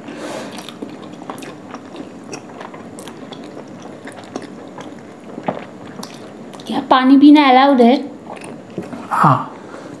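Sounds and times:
chewing with wet mouth sounds: 0.5 - 6.8, 8.2 - 9.1.

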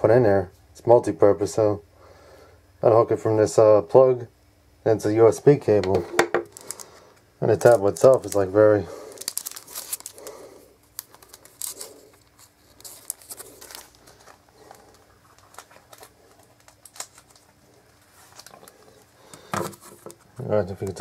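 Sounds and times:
soft low hums: 1.8 - 21.0
plastic sleeve clicks and rustles: 5.9 - 6.9, 7.5 - 8.5, 9.1 - 10.3, 10.9 - 18.8.

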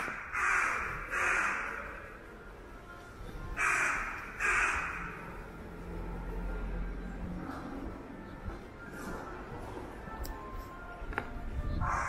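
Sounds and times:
crow cawing: 0.0 - 2.1, 3.6 - 5.3.

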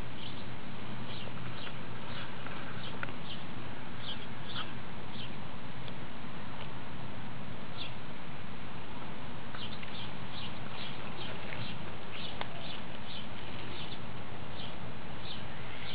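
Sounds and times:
outdoor background noise: 0.0 - 15.9
bird chirping quickly: 0.2 - 5.4, 9.6 - 15.9.

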